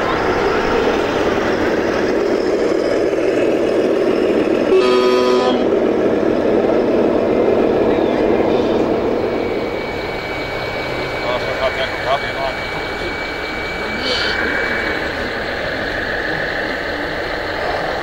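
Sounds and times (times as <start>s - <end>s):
steady background noise: 0.0s - 18.0s
vehicle horn blast: 4.7s - 5.7s.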